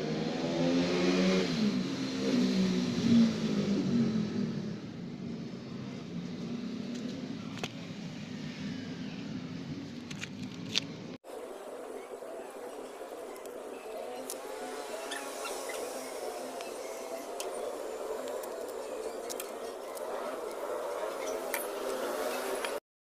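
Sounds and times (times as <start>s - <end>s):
vehicle engine revving and passing: 0.0s - 7.3s, 12.4s - 22.8s.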